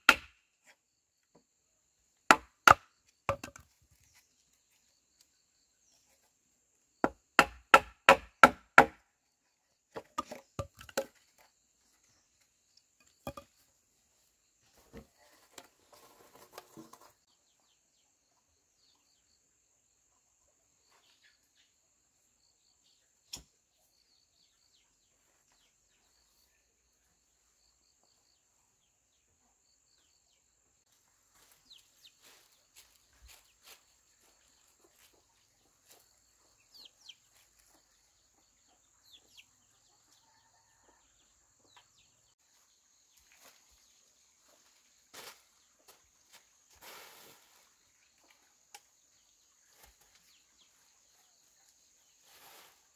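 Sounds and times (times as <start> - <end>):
chopping blows on wood: 0.0 - 0.4, 7.4 - 9.0.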